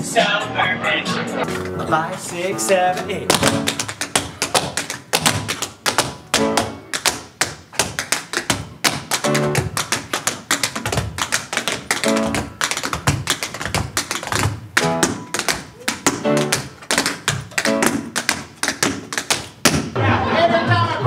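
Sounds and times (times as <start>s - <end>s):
short musical chords: 1.4s - 3.8s
tap shoes striking stage: 1.6s - 20.0s.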